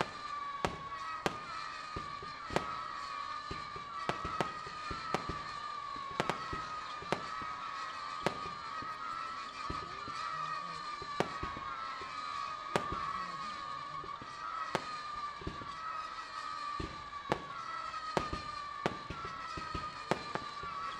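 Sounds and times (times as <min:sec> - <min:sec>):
fireworks bursting in sharp bangs: 0:00.0 - 0:20.9.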